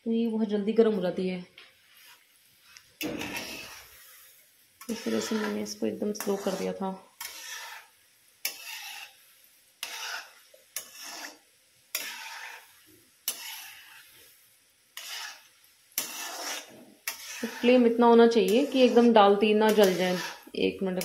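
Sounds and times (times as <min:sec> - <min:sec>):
hot oil sizzling: 0:00.4 - 0:21.0
metal spoon scraping pan: 0:03.0 - 0:09.2, 0:09.8 - 0:21.0.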